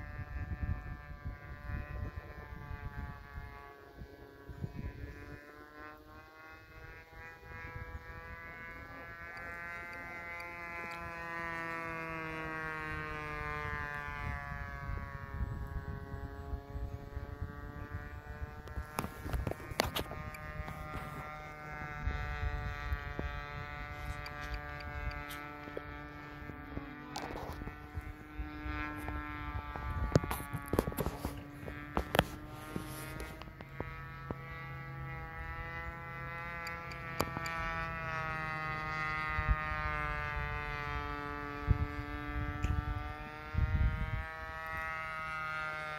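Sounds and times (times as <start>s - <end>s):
model plane engine buzzing: 0.0s - 45.9s
microphone clicks: 18.6s - 21.5s, 28.9s - 34.4s.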